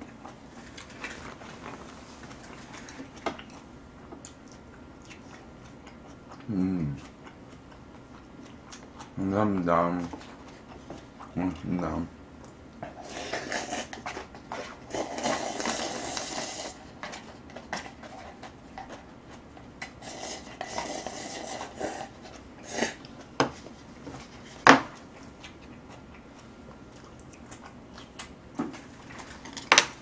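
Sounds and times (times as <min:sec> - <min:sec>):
slurping noodles: 0:12.9 - 0:16.8, 0:20.0 - 0:23.0.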